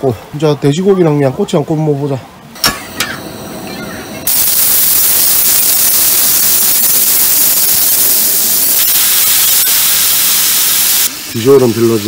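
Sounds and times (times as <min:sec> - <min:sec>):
meat sizzling on a griddle: 0:04.3 - 0:12.0.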